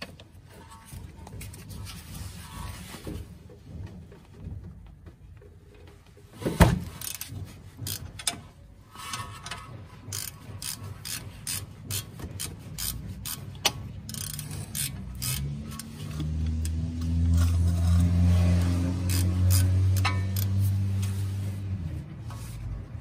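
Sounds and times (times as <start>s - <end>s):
ratchet wrench clicking: 7.0s - 8.4s, 9.1s - 20.8s.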